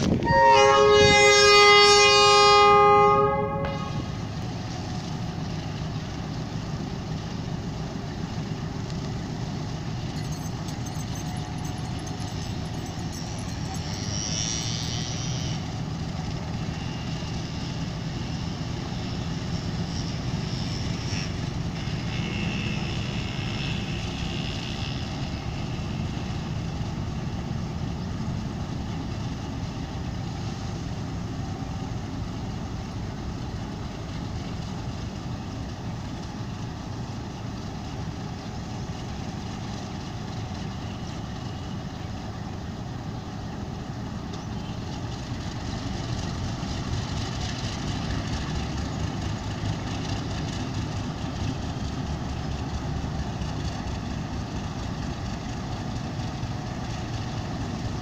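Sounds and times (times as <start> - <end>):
diesel engine rumbling: 0.0 - 58.0
locomotive air horn blast: 0.1 - 4.2, 13.8 - 15.8, 20.1 - 26.2.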